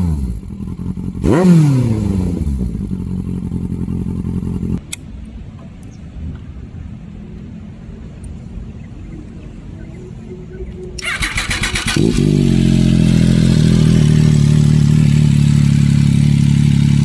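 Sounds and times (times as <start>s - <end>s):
motorcycle engine idling: 2.4s - 4.8s, 11.0s - 17.0s.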